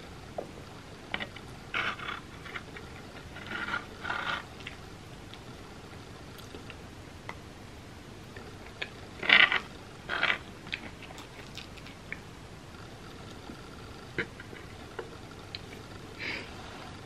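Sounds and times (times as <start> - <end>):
chewing and wet mouth clicks: 10.7 - 12.2.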